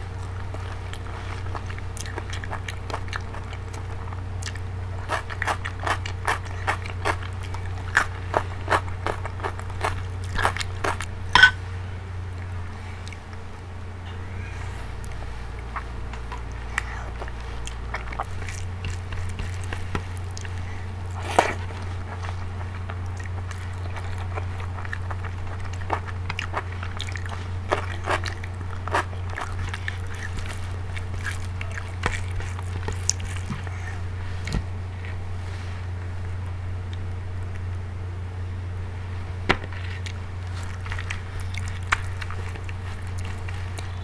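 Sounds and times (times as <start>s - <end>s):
chewing and biting: 0.0s - 11.6s, 12.3s - 13.6s, 14.9s - 35.3s, 39.6s - 44.0s
steady low hum: 0.0s - 44.0s
fingers squishing rice: 14.8s - 35.2s, 39.6s - 44.0s.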